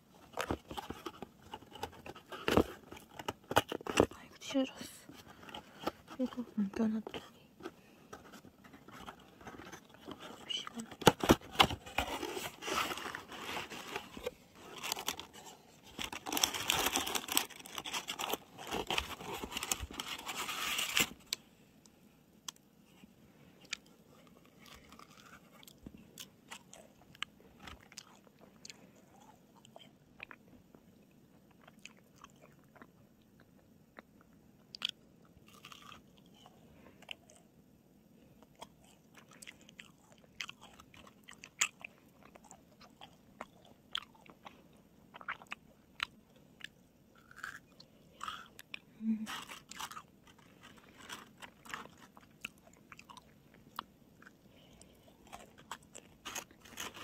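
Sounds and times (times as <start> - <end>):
plastic packaging crinkling: 8.8 - 21.4, 49.3 - 52.3, 55.3 - 57.0
macaron being chewed: 23.6 - 37.6, 38.4 - 57.0.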